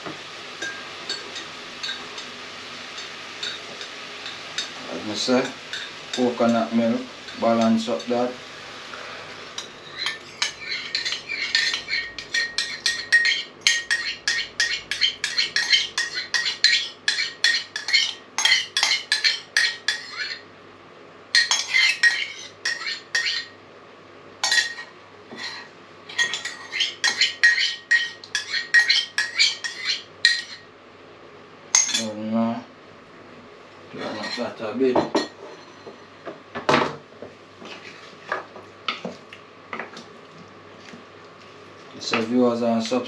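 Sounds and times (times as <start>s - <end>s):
metal spoon scraping a tin: 9.6s - 20.4s, 21.4s - 23.5s, 24.5s - 30.6s.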